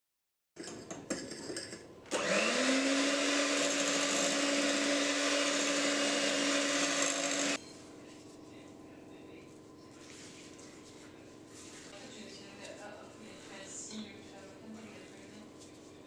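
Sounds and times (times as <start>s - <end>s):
electric hand mixer beating batter: 2.1s - 7.6s
mixer rattling in glass bowl: 2.6s - 7.6s.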